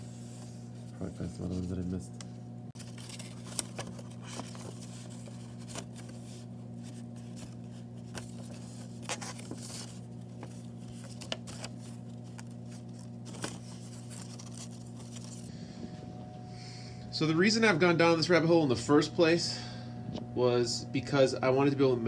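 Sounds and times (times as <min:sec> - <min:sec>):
steady low hum: 0:00.0 - 0:22.0
paper crinkling and snapping: 0:02.8 - 0:15.5.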